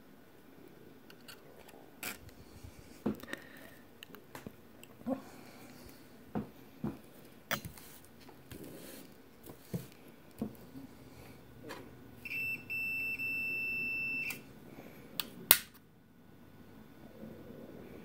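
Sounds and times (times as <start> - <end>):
multimeter beeping: 12.2 - 14.4.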